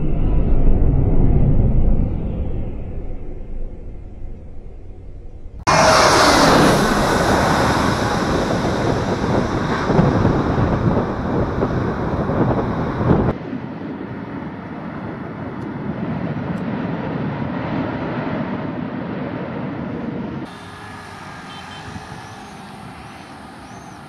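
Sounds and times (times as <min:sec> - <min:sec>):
distant jet engine: 0:00.0 - 0:24.0
jet passing low overhead: 0:00.0 - 0:24.0
wind buffeting microphone: 0:05.6 - 0:17.7, 0:19.9 - 0:24.0.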